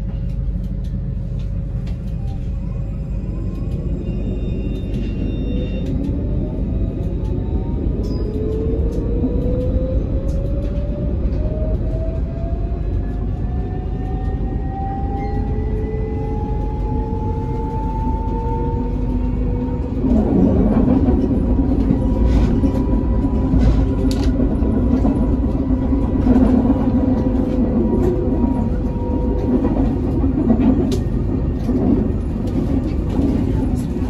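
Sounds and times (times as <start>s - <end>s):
tram traction drive whine: 0.0s - 34.0s.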